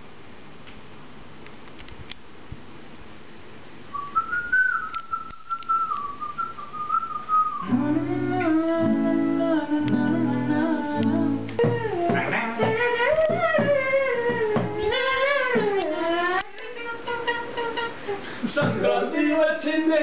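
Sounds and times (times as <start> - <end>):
person whistling a melody: 4.0 - 9.4
acoustic guitar strumming chords: 7.6 - 14.8.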